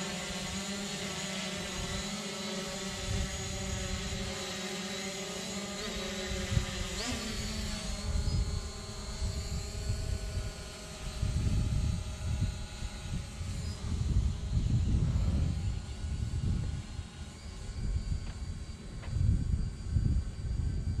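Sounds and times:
quadcopter propellers humming: 0:00.0 - 0:21.0
wind buffeting microphone: 0:02.8 - 0:04.4, 0:06.2 - 0:21.0.

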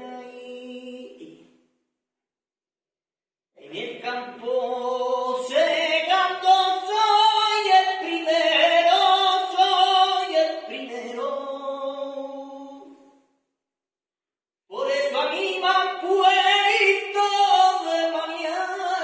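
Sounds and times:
man singing flamenco unaccompanied: 0:03.6 - 0:12.7, 0:14.7 - 0:19.0.

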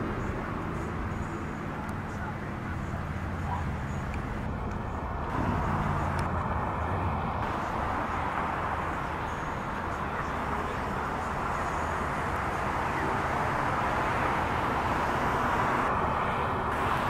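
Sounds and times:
road traffic from passing cars: 0:00.0 - 0:17.0.

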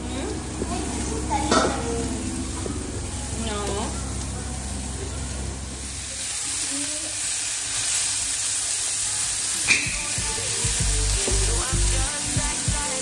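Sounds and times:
mushrooms sizzling in a pan: 0:00.0 - 0:13.0
background music with bass beat: 0:09.7 - 0:13.0.

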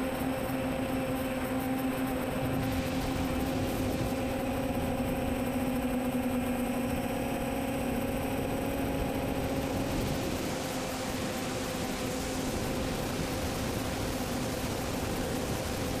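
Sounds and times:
drone propellers humming: 0:00.0 - 0:16.0
wind rush: 0:02.2 - 0:05.7, 0:08.1 - 0:16.0.

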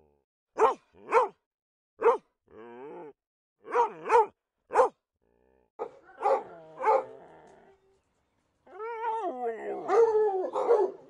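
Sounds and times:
dog barking: 0:00.6 - 0:01.4, 0:02.0 - 0:02.3, 0:03.7 - 0:05.0, 0:05.8 - 0:07.1, 0:09.9 - 0:11.0.

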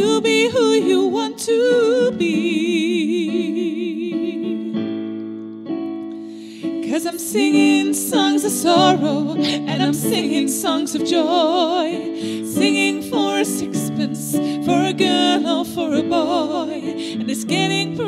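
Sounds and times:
piano: 0:00.0 - 0:18.0
woman singing with vibrato: 0:06.8 - 0:18.0.

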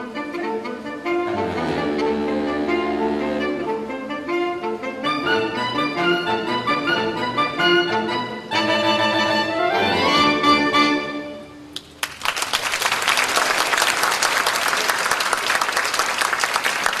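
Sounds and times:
saxophone quartet playing: 0:00.1 - 0:11.6
audience applauding: 0:11.8 - 0:17.0.

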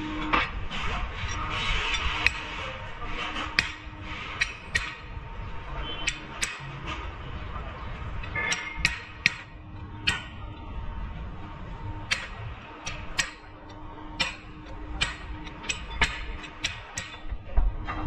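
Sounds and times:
tools clicking on metal: 0:04.4 - 0:05.0, 0:06.0 - 0:06.7, 0:08.2 - 0:10.6, 0:12.1 - 0:17.4.

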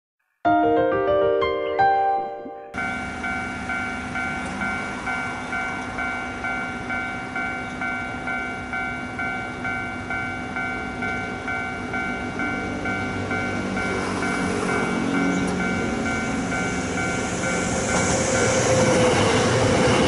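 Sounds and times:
level crossing bell ringing: 0:02.0 - 0:13.9
train rumble: 0:02.8 - 0:20.0.

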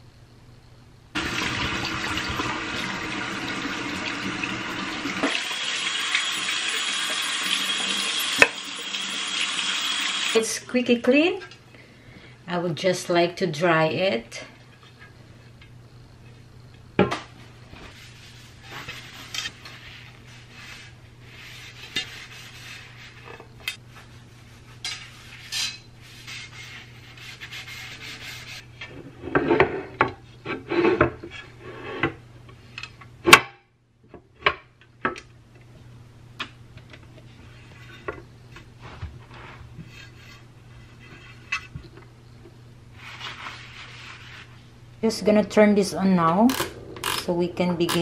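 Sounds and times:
cloth rubbing on grill plate: 0:17.7 - 0:29.8, 0:42.9 - 0:44.8.

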